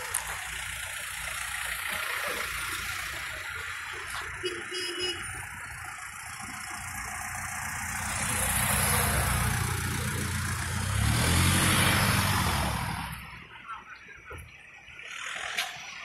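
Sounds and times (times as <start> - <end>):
vehicle engine and tyres: 0.0 - 16.0
car passing by: 8.0 - 13.3.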